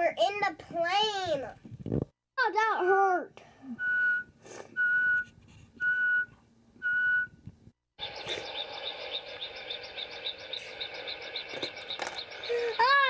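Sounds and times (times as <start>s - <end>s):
crickets chirping: 8.0s - 13.0s
insect hum: 8.0s - 13.0s.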